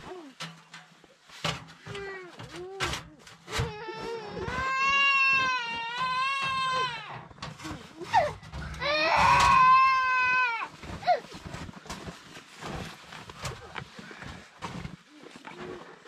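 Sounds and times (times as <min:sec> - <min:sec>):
baby crying: 0:03.6 - 0:07.2, 0:08.1 - 0:11.2.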